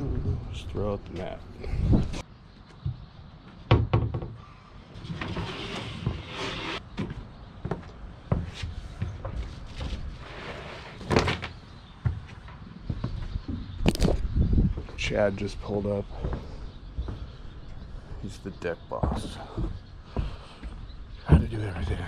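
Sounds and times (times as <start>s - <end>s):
scraping and rustling: 4.9s - 6.9s
rubber boots stepping on deck: 6.9s - 10.1s, 11.8s - 22.0s.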